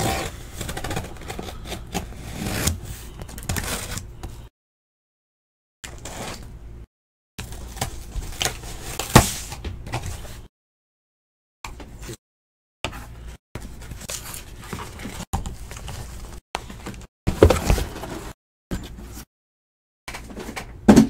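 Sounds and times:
cardboard boxes rustling and scraping: 0.0s - 4.4s, 13.6s - 19.3s.

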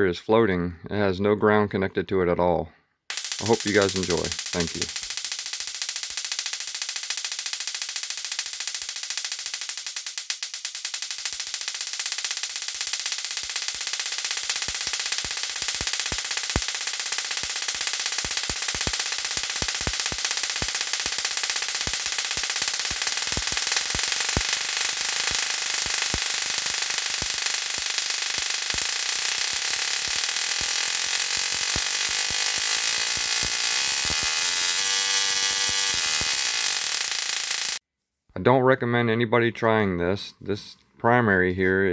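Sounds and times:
sharp electric crackles: 3.1s - 37.8s
tesla coil hissing buzz: 3.1s - 37.8s.

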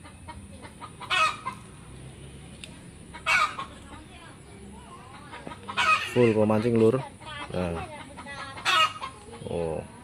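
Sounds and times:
hen cackling: 0.0s - 1.8s, 3.0s - 4.1s, 4.8s - 6.7s, 7.4s - 9.6s.

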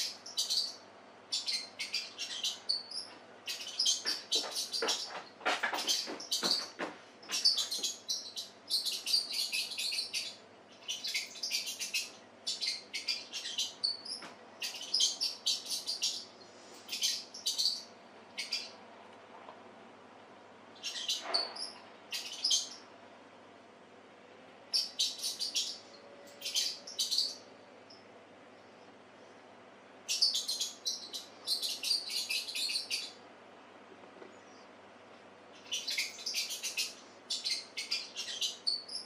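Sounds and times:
high-pitched chirping squeaks: 1.4s - 9.6s.

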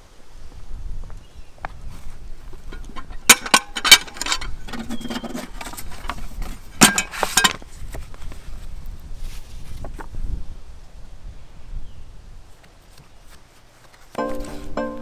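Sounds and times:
metal letterbox door clanking: 3.0s - 5.4s.

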